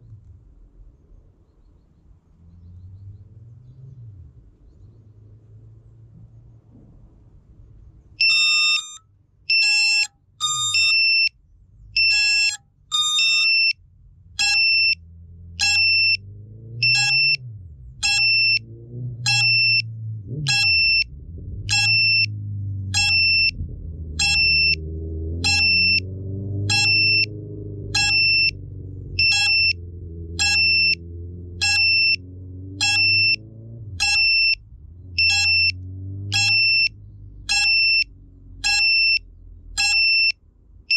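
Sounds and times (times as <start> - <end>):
high-pitched electronic beeps: 8.2 - 11.3, 12.0 - 13.8, 14.4 - 15.0, 15.6 - 16.2, 16.8 - 17.4, 18.0 - 18.7, 19.3 - 21.1, 21.7 - 23.6, 24.2 - 28.6, 29.2 - 34.6, 35.2 - 40.4
low hum rising and falling: 15.0 - 39.8.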